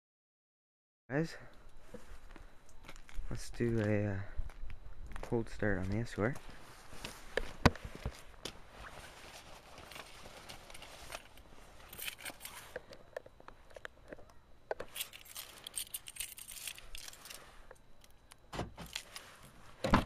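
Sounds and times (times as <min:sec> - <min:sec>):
car keys jangling: 0:11.2 - 0:12.6, 0:14.8 - 0:18.2
key fob clicks and rattles: 0:11.2 - 0:17.4.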